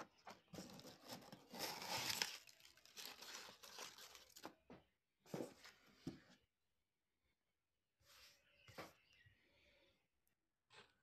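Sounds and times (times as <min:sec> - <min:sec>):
packing material rustling: 0:00.4 - 0:04.6.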